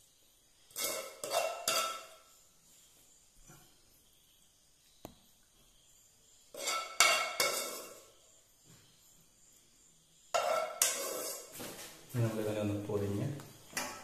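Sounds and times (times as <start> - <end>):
metal spoon clinking against pot: 0.7 - 2.2, 6.5 - 8.1, 10.3 - 11.5.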